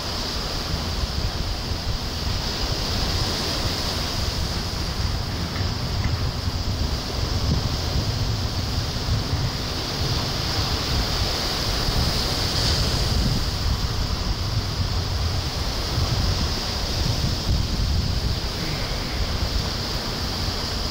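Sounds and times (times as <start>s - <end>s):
small waves on sandy beach: 0.0s - 20.9s
wind buffeting microphone: 0.0s - 20.9s.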